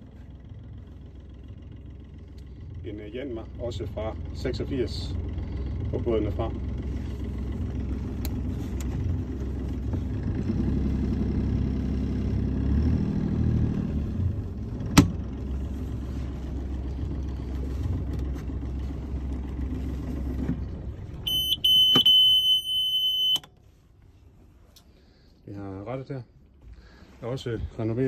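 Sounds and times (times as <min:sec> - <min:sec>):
diesel engine rumbling: 0:00.0 - 0:28.0
alarm beep: 0:21.3 - 0:23.5.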